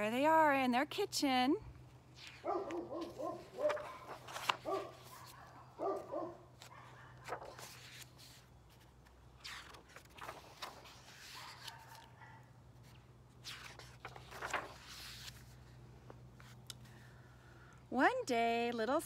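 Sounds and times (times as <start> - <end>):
book pages turning: 2.2 - 16.9.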